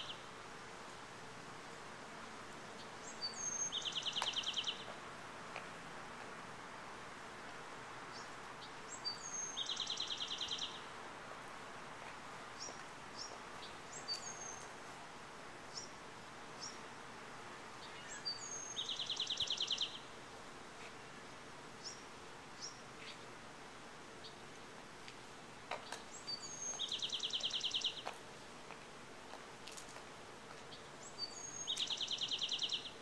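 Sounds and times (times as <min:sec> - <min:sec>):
songbird singing with trill: 0:00.0 - 0:00.3, 0:02.8 - 0:04.9, 0:08.1 - 0:10.9, 0:12.6 - 0:14.7, 0:17.8 - 0:20.1, 0:25.8 - 0:28.1, 0:30.7 - 0:33.0
outdoor background hiss: 0:00.0 - 0:33.0.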